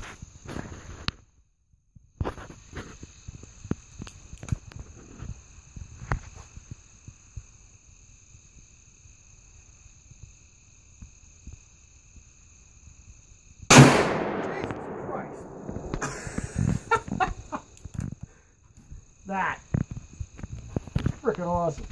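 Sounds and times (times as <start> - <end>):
insect chirring: 1.9 - 21.9
sharp crack: 13.7 - 18.0.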